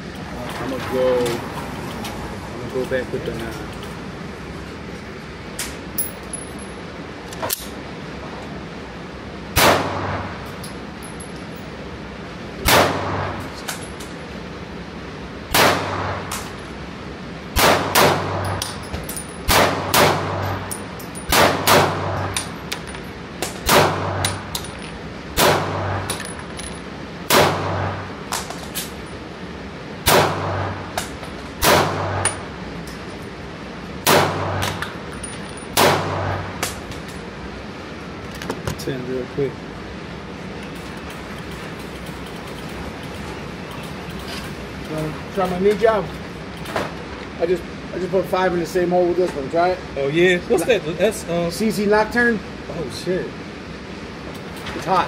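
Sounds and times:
pistol shots with ring-out: 9.6 - 10.3, 12.6 - 13.4, 15.5 - 16.4, 17.6 - 18.6, 19.5 - 20.6, 21.3 - 22.4, 23.6 - 24.4, 25.4 - 26.1, 27.3 - 28.1, 30.0 - 30.8, 31.6 - 32.2, 34.0 - 34.8, 35.8 - 36.6.

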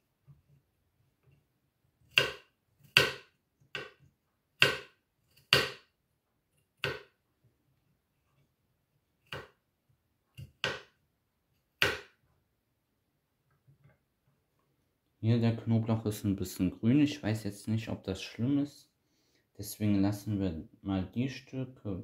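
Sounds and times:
knife striking wooden cutting board: 2.1 - 4.0, 4.6 - 5.9, 6.8 - 7.2, 9.2 - 9.6, 10.4 - 11.0, 11.8 - 12.2.

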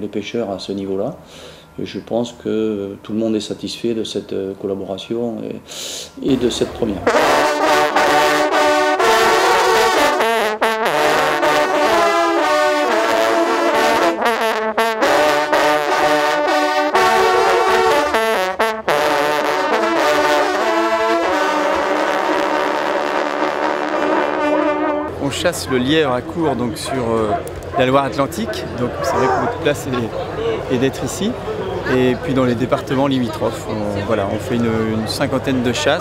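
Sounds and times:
hunting horns playing fanfare: 7.0 - 27.5, 28.2 - 30.4.

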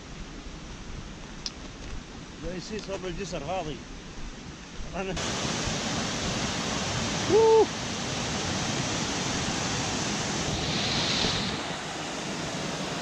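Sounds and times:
water rushing over rocks: 5.2 - 13.0.

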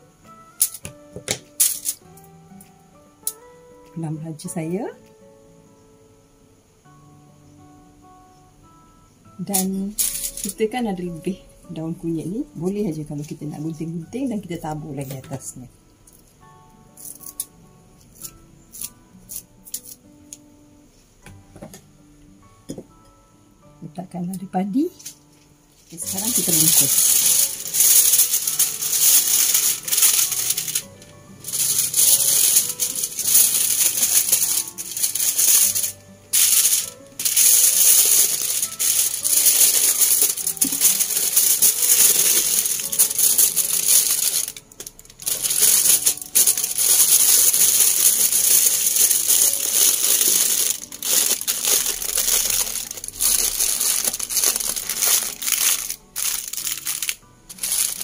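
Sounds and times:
aluminium foil crinkling: 1.6 - 2.2, 9.5 - 11.0, 25.9 - 58.0.

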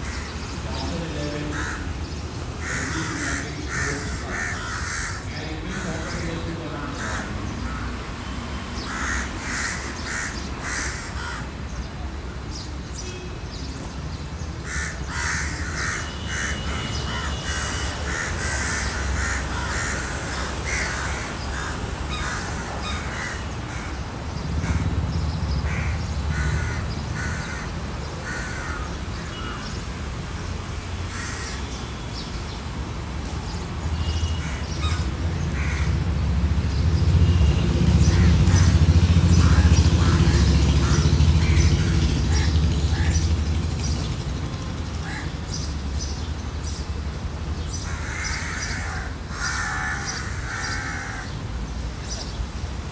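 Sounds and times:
crows cawing: 0.0 - 8.1, 8.8 - 11.8, 14.6 - 25.0, 25.6 - 29.8, 31.1 - 31.8, 34.0 - 36.0, 38.0 - 43.3, 45.0 - 45.4, 47.7 - 51.4.

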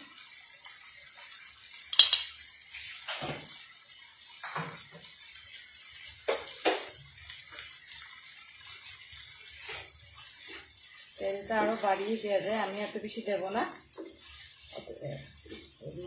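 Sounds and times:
food sizzling in oil: 0.0 - 16.0
sharp clicks and knocks: 1.9 - 2.4.

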